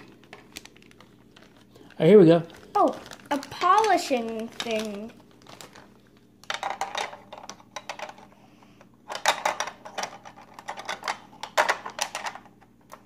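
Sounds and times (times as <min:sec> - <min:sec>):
plastic pieces clicking and clattering: 0:02.8 - 0:08.3, 0:09.1 - 0:13.0.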